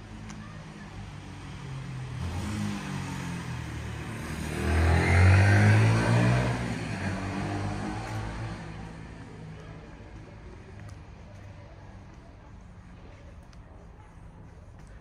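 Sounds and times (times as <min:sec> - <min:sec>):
motor vehicle passing by: 0:01.6 - 0:09.1.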